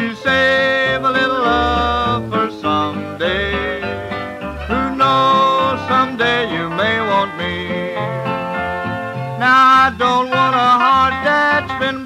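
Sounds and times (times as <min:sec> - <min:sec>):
sliding lead melody: 0:00.0 - 0:12.0
string band playing country music: 0:00.0 - 0:12.0.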